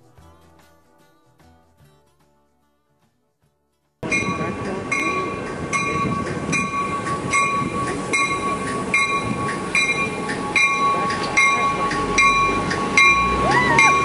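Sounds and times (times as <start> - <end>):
steady tone: 4.0 - 14.0
train warning bell ringing: 4.0 - 14.0.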